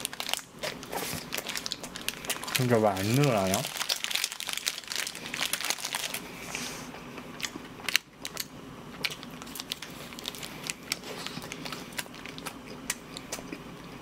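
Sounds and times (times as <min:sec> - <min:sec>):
close chewing clicks and crackles: 0:07.0 - 0:14.0.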